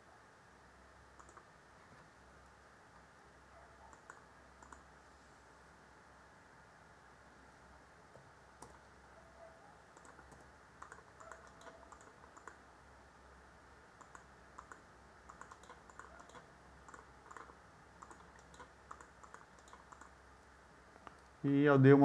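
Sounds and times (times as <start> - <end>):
low steady hum: 0.0 - 22.0
keyboard typing: 1.2 - 1.5, 3.9 - 4.9, 8.6 - 8.8, 9.9 - 12.7, 14.0 - 20.2
mouse clicks: 1.2 - 1.5, 3.8 - 4.9, 8.6 - 8.8, 9.9 - 12.6, 14.0 - 20.2.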